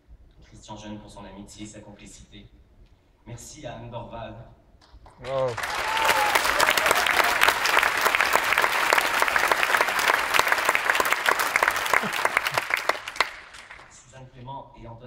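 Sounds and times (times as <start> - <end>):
large audience applauding: 5.1 - 14.0.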